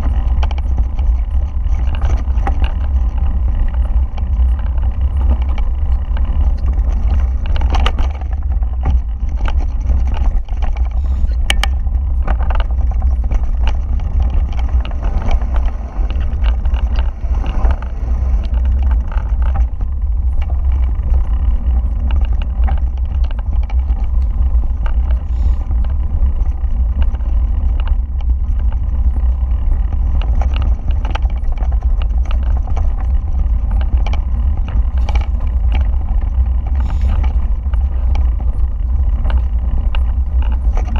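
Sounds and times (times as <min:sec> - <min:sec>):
mountain bike rattling: 0:00.0 - 0:40.9
wind buffeting microphone: 0:00.0 - 0:40.9.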